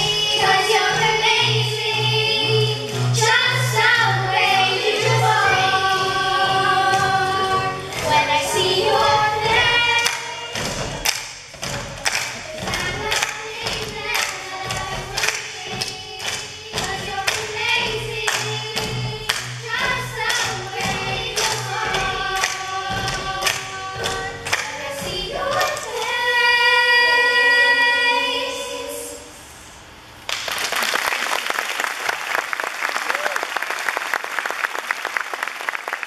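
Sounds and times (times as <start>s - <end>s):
children singing over a beat: 0.0s - 29.2s
audience applause: 30.3s - 36.0s.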